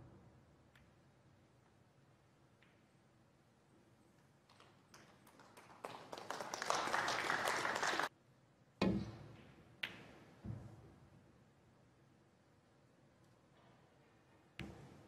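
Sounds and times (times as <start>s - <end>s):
audience clapping: 4.5s - 8.1s.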